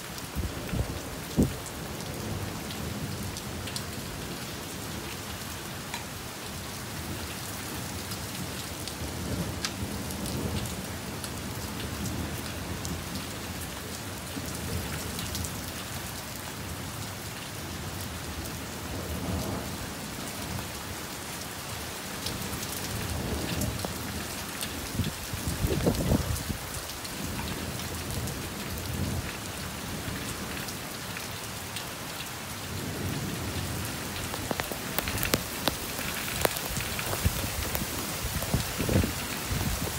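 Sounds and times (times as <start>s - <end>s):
heavy rain: 0.0s - 39.9s
raindrops spattering: 22.6s - 28.0s, 33.1s - 39.9s.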